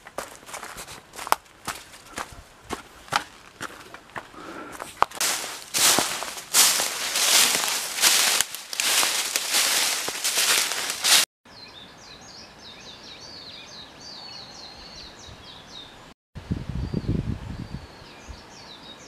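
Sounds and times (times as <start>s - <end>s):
footsteps crunching dry leaves: 0.0s - 11.3s
songbird chirping: 5.2s - 16.1s.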